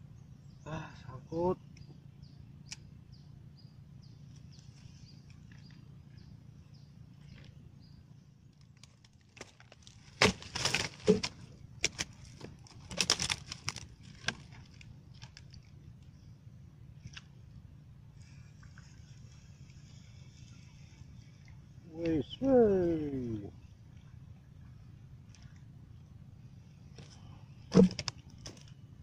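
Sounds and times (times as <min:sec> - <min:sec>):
twigs crackling and snapping: 0:08.5 - 0:15.8, 0:27.0 - 0:28.8.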